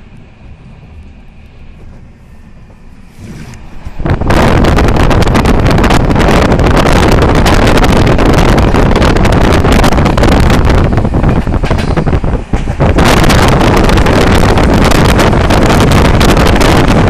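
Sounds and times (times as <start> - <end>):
train rumbling at speed: 0.0 - 17.0
wind buffeting microphone: 0.0 - 17.0.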